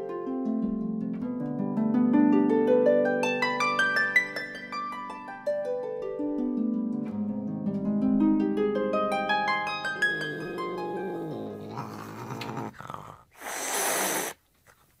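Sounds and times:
harp arpeggios: 0:00.0 - 0:11.9
cat making noisy sounds: 0:09.9 - 0:14.4.

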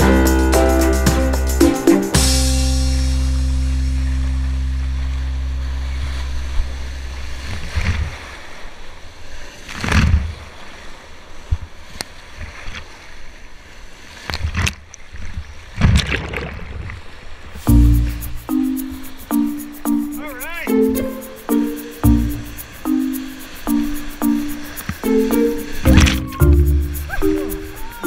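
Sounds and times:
background music: 0:00.0 - 0:07.4, 0:17.7 - 0:28.0.

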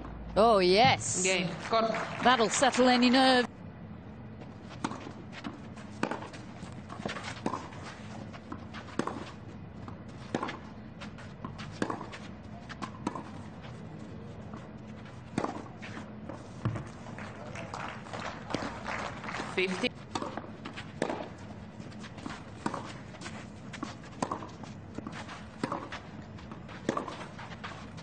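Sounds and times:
racket hitting tennis ball: 0:04.8 - 0:10.8, 0:11.4 - 0:13.6, 0:15.3 - 0:17.0, 0:19.4 - 0:28.0.

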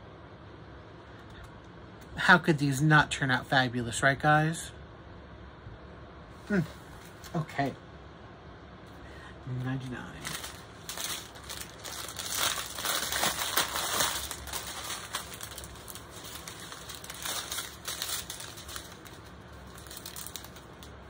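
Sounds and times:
plastic bags crinkling: 0:09.8 - 0:21.0.

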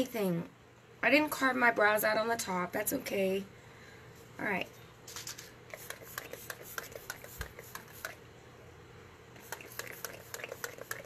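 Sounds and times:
spray bottle hissing spritzes: 0:09.4 - 0:11.0.

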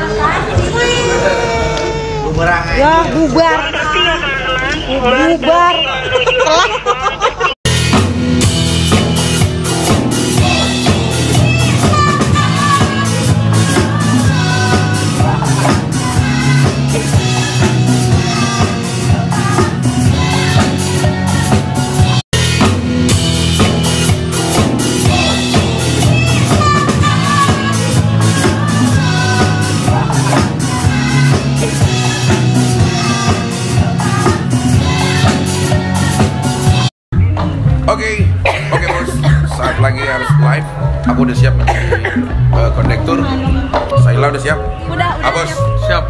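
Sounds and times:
drum kit beat: 0:07.6 - 0:44.3
live band music: 0:07.6 - 0:46.0
woman singing: 0:10.4 - 0:21.6, 0:25.0 - 0:36.4.

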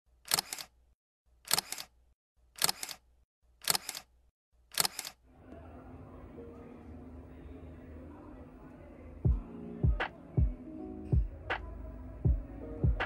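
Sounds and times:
camera shutter double clicks: 0:00.3 - 0:00.7, 0:01.5 - 0:01.9, 0:02.6 - 0:03.0, 0:03.6 - 0:04.1, 0:04.7 - 0:05.2.

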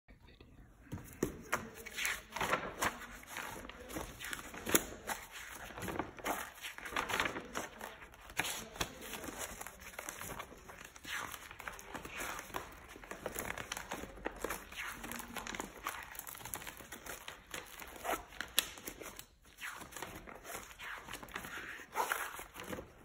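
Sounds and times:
paper pages rustling: 0:00.8 - 0:23.0
pages flapping over: 0:01.0 - 0:17.3.

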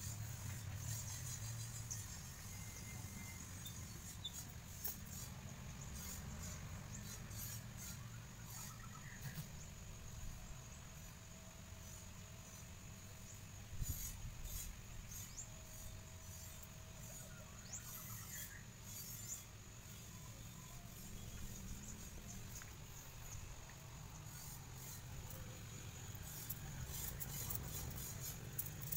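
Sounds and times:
high insect hum: 0:00.0 - 0:28.9.

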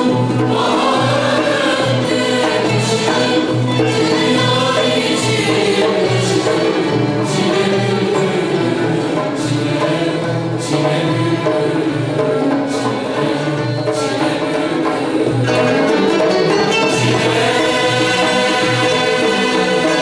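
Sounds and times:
mixed choir singing: 0:00.0 - 0:20.0
plucked string accompaniment: 0:00.0 - 0:20.0.

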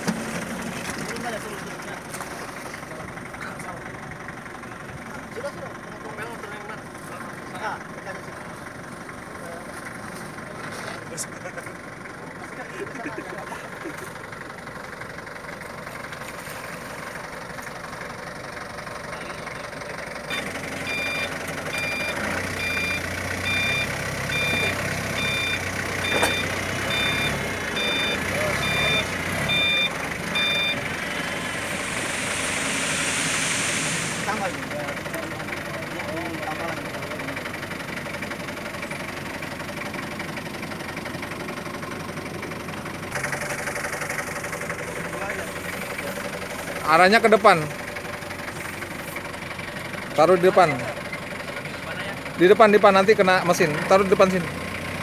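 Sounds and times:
forklift engine running: 0:00.0 - 0:55.0
forklift backup alarm beeping: 0:20.2 - 0:34.2.

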